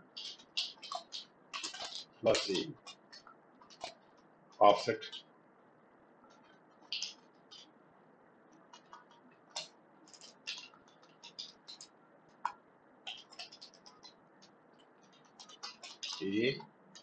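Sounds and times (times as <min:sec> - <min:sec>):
keyboard typing: 0:00.0 - 0:05.2, 0:08.6 - 0:17.0.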